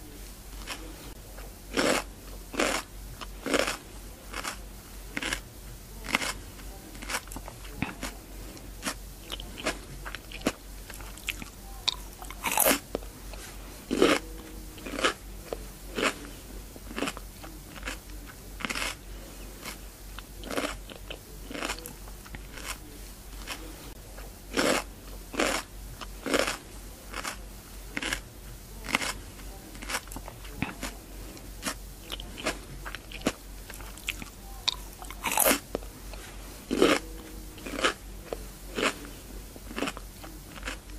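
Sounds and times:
cucumber crunching while chewed: 0.6s - 0.9s, 1.7s - 23.7s, 24.5s - 40.9s.

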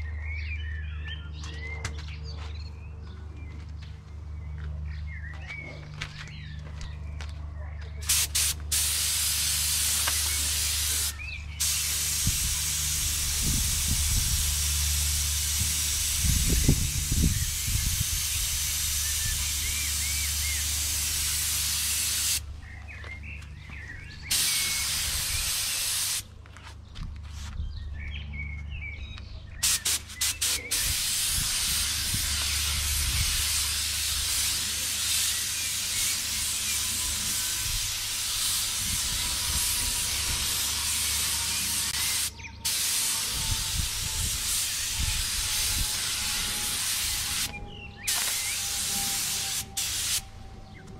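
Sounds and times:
paint spray gun hissing: 8.0s - 22.4s, 24.3s - 26.2s, 29.6s - 50.2s.

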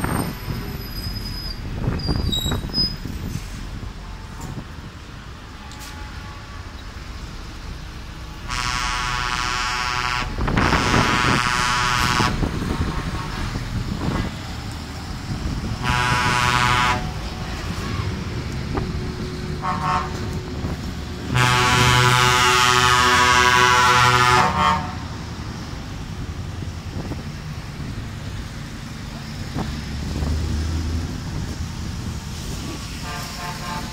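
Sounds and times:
truck engines rumbling: 0.0s - 33.9s
truck air horn blasts: 5.6s - 6.7s, 8.4s - 13.7s, 15.8s - 17.2s, 19.6s - 20.4s, 21.3s - 25.2s, 32.9s - 33.9s.

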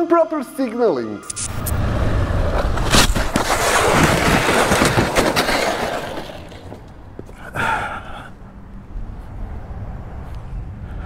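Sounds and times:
motorcycle scraping across asphalt: 1.8s - 7.4s.

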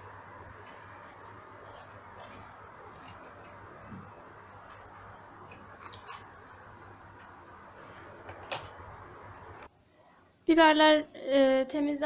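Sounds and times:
low steady hum: 0.0s - 12.0s
peppers crackling as handled: 0.6s - 7.4s.

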